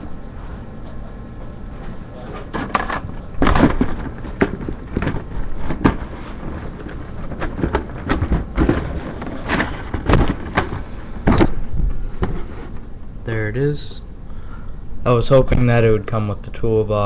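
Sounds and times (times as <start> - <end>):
plastic parts clicking and rustling: 2.5 - 11.6.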